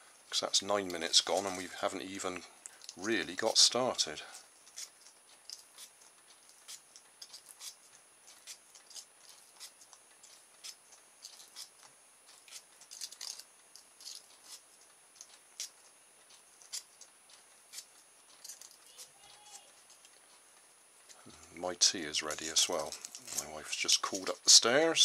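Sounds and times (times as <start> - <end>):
sandpaper scratching wire: 6.6 - 14.7.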